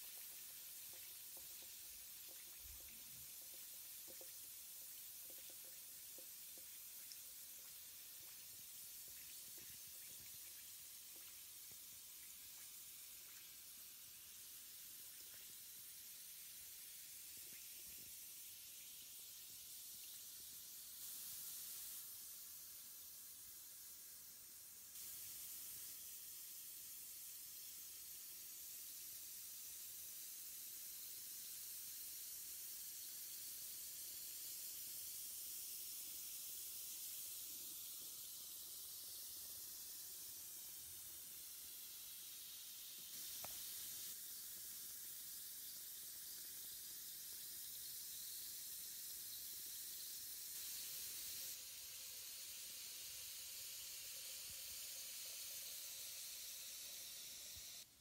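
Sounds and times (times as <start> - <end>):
bath bomb fizzing in water: 0.0 - 57.9.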